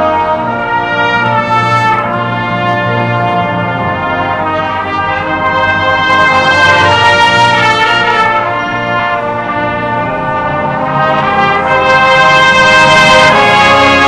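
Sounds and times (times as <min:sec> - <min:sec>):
brass horns playing chords: 0:00.0 - 0:14.0.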